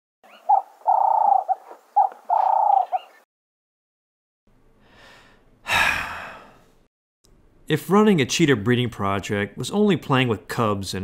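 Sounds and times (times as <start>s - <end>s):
dove cooing: 0.3s - 3.2s.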